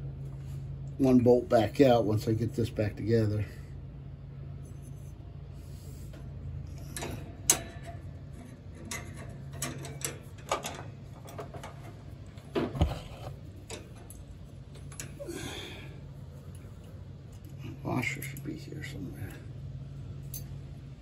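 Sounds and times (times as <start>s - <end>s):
metal tools clicking and knocking: 6.7s - 12.0s.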